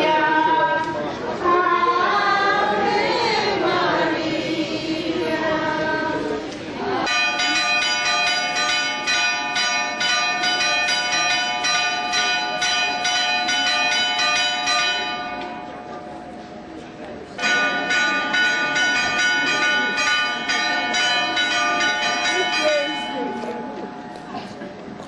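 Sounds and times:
crowd singing a hymn: 0.0s - 7.3s
church bells ringing: 7.0s - 25.0s.

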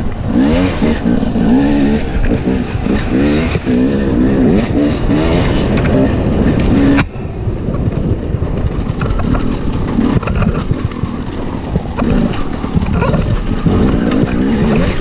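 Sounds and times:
motorcycle engine at low revs: 0.0s - 15.0s.

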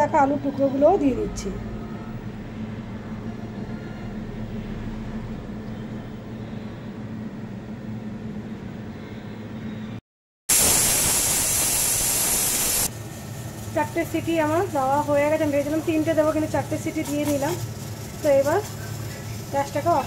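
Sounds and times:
low hum: 0.0s - 10.0s
pressure cooker steam hiss: 10.5s - 20.0s.

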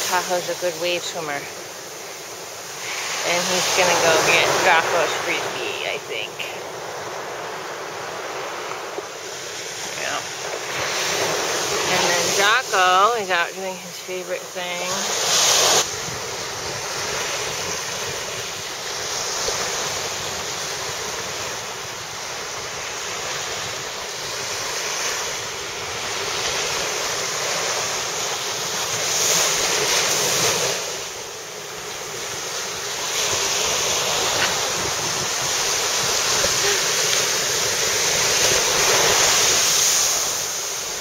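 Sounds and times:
ocean surf breaking: 0.0s - 41.0s
wind buffeting microphone: 33.2s - 40.3s.

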